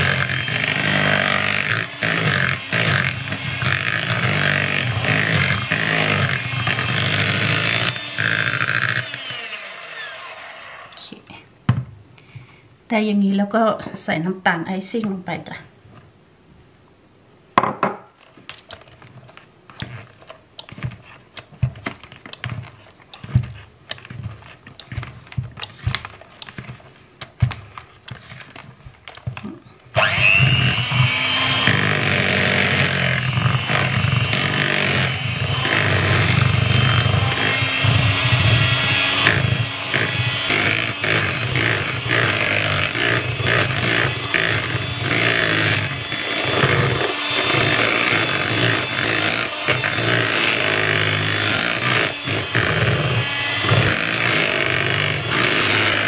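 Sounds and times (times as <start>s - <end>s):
electric hand mixer whipping: 0.0s - 11.0s, 27.4s - 56.0s.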